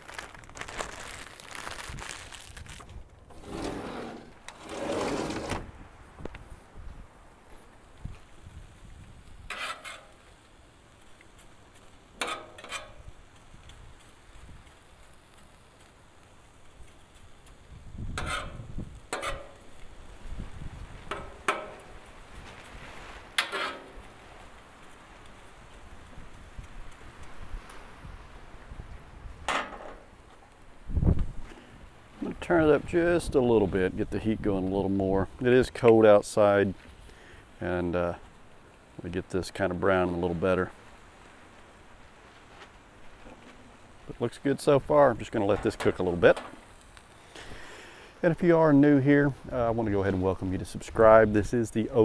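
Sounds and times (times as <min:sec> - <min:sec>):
plastic bag crinkling: 0:00.0 - 0:03.5
metal spatula scraping griddle: 0:03.3 - 0:05.6, 0:09.5 - 0:10.2, 0:12.2 - 0:13.1, 0:18.1 - 0:19.7, 0:23.4 - 0:24.0.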